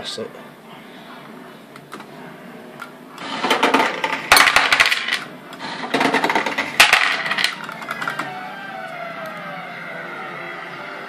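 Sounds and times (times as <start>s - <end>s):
coins clattering: 3.3s - 8.3s.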